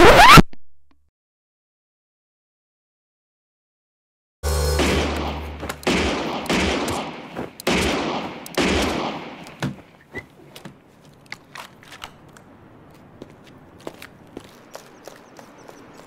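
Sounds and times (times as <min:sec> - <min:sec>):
gunshots with ringing tails: 0:04.5 - 0:09.6.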